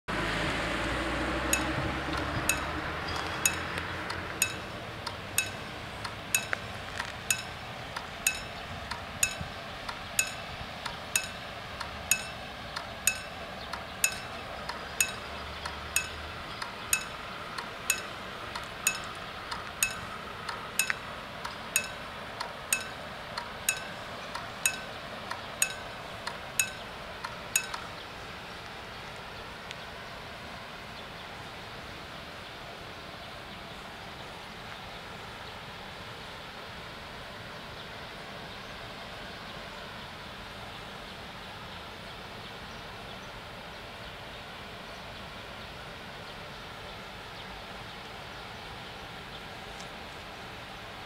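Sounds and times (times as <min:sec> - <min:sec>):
car driving away: 0:00.1 - 0:07.8
level crossing warning bell: 0:01.5 - 0:27.9.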